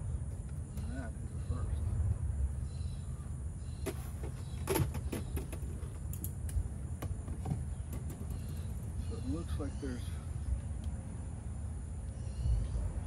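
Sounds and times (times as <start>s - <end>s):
steady low rumble: 0.0s - 3.8s.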